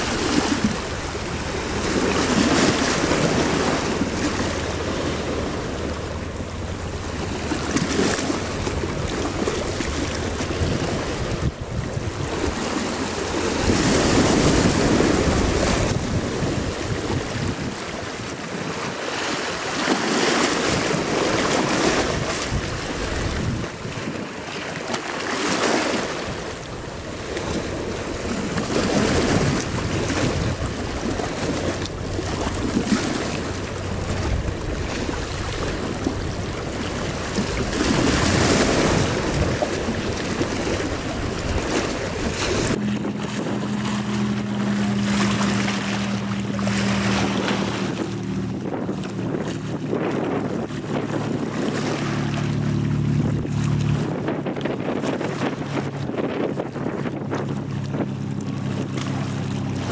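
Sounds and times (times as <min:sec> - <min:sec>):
choppy water: 0:00.0 - 0:59.9
wind gusting over microphone: 0:00.0 - 0:59.9
low steady hum: 0:26.5 - 0:54.8.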